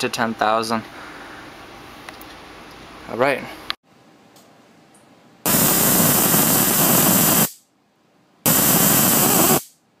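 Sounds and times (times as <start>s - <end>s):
electric arc hissing buzz: 5.4s - 7.6s, 8.4s - 9.8s.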